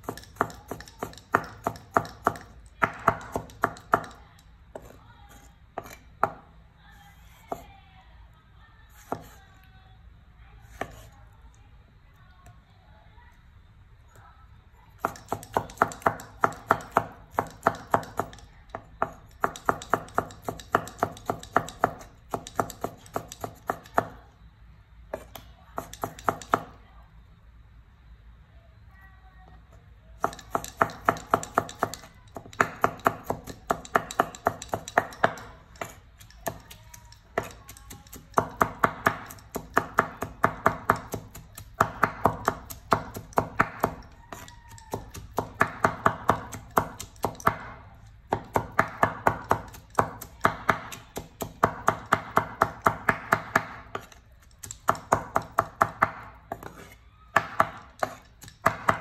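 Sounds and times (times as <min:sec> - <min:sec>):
cleaver chopping on wooden board: 0:37.4 - 0:59.0.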